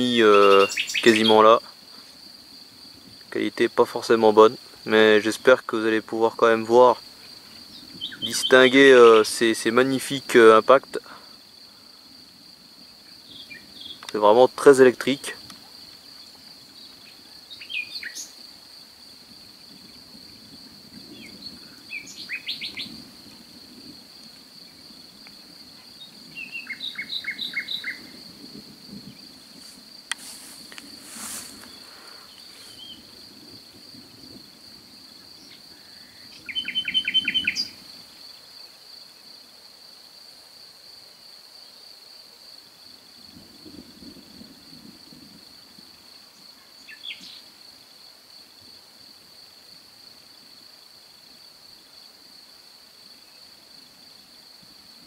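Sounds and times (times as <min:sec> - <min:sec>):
songbird singing: 0:00.0 - 0:39.5, 0:46.2 - 0:47.9
cricket trilling: 0:00.0 - 0:55.0.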